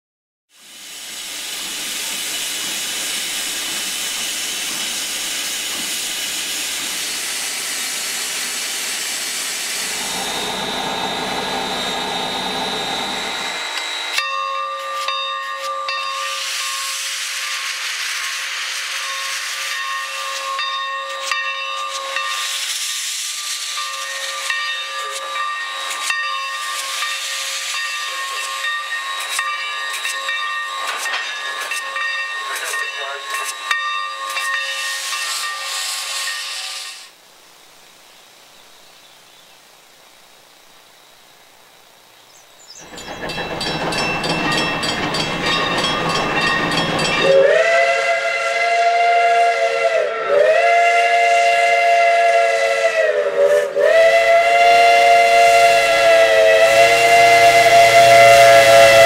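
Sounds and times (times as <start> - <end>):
steam blowing from cylinder cocks: 0.5 - 37.2, 42.8 - 59.0
steam locomotive hissing: 0.5 - 37.2, 42.8 - 59.0
faint whistling tones: 42.4 - 48.6.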